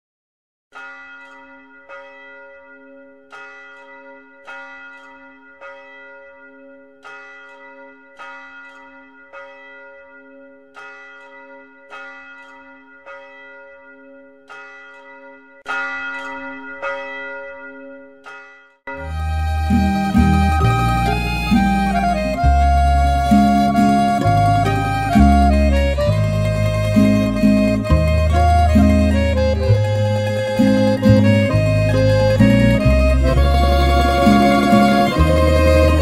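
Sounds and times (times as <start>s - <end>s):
bell tolling: 0.8s - 22.5s, 23.2s - 36.0s
deeper sound: 18.9s - 36.0s.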